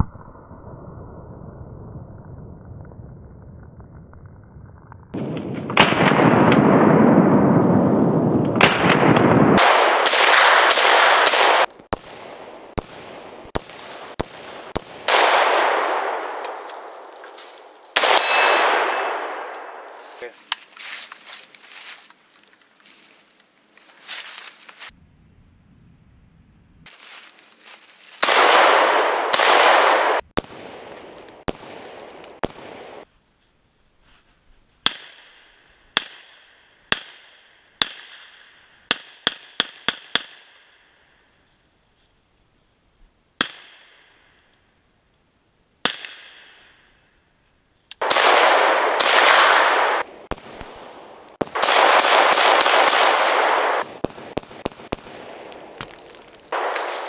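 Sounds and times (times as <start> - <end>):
rifle shots with echo: 5.2 - 20.2, 28.2 - 33.0, 48.0 - 55.5, 56.5 - 57.0.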